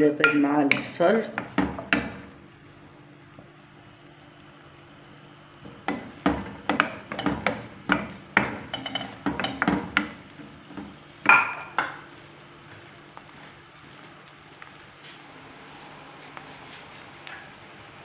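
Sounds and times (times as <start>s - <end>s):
spoon scraping frying pan: 5.8s - 11.9s.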